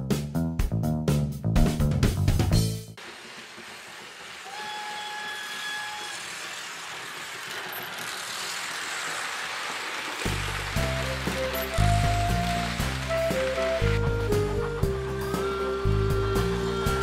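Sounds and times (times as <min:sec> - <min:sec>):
music: 0:00.0 - 0:03.0, 0:10.3 - 0:17.0
model train rolling on track: 0:03.0 - 0:17.0
whistle-like tone: 0:10.8 - 0:14.5.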